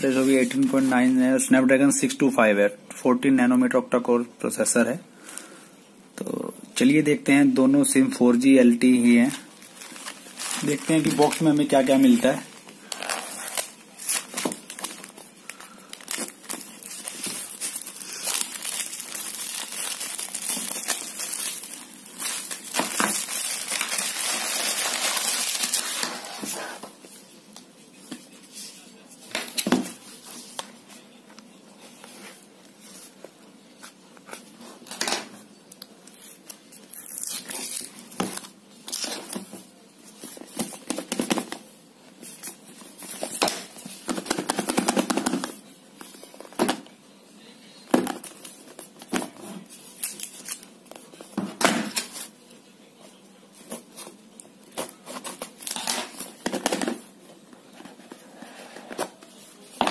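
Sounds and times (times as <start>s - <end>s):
plastic packaging crinkling and tearing: 9.1s - 26.6s, 36.1s - 39.5s, 49.8s - 51.2s, 53.7s - 57.0s.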